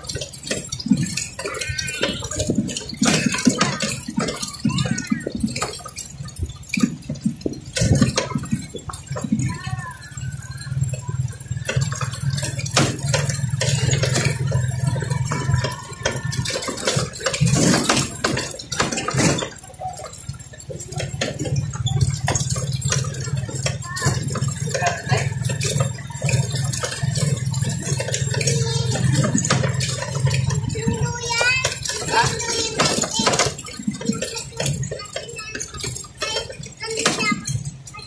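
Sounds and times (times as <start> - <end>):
knocks and rattles: 0.0 - 38.0
motorcycle engine running: 0.0 - 38.0.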